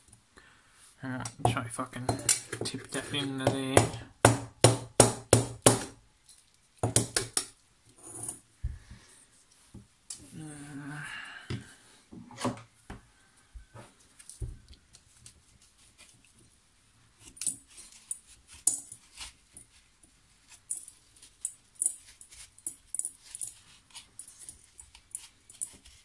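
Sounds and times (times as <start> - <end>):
metal tool scraping: 8.0 - 8.4.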